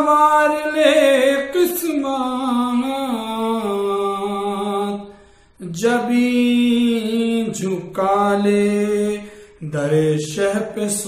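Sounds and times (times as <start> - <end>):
man singing unaccompanied: 0.0 - 11.0.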